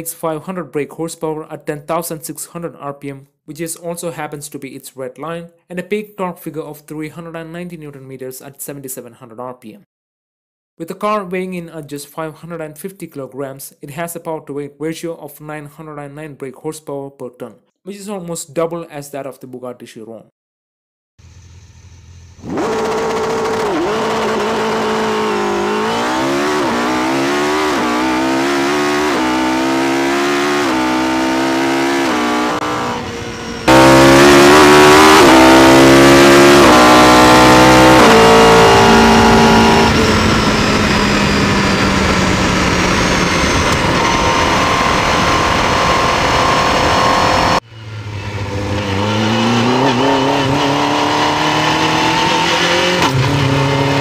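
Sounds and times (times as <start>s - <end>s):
car engine accelerating hard: 21.2s - 54.0s.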